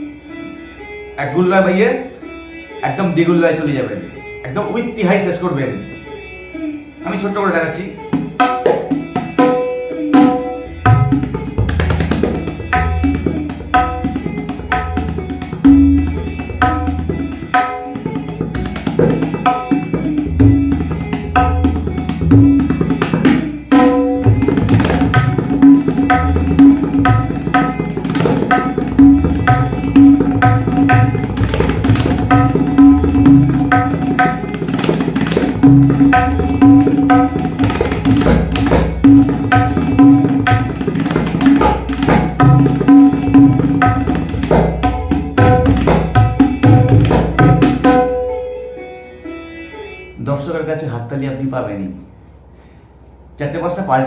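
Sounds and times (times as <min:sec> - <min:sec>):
tabla drumming: 0:07.9 - 0:48.6.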